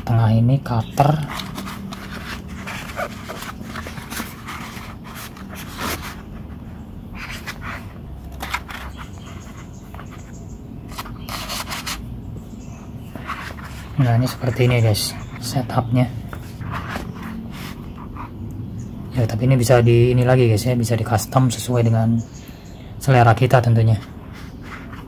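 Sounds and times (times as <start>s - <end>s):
tools scraping against nylon pouch: 1.0s - 6.4s, 7.2s - 12.0s.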